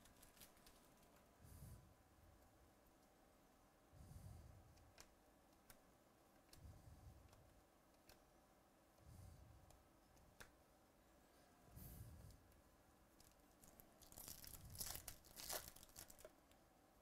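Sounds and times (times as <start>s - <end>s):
foil wrapper tearing: 0.0s - 1.1s, 13.7s - 16.3s
packs rustling: 0.0s - 1.2s, 13.2s - 16.3s
soft clicks: 4.7s - 8.4s, 9.6s - 10.6s.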